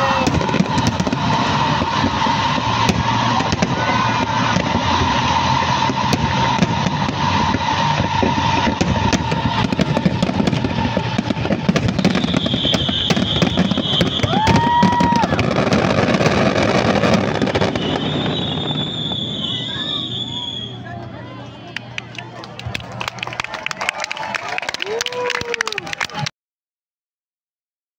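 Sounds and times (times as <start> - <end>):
fireworks crackling and popping: 0.0 - 21.1
firework whistle: 0.0 - 21.8.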